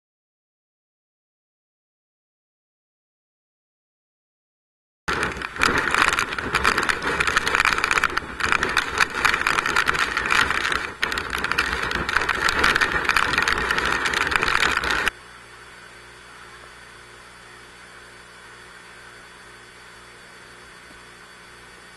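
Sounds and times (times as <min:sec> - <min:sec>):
rain and wind lashing a vehicle: 0:05.1 - 0:15.1.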